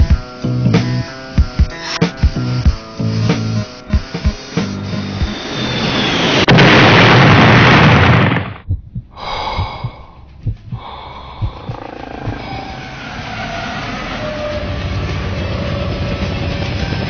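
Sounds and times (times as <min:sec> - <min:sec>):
rushing roar sound effect: 0:05.2 - 0:08.6, 0:11.6 - 0:17.0.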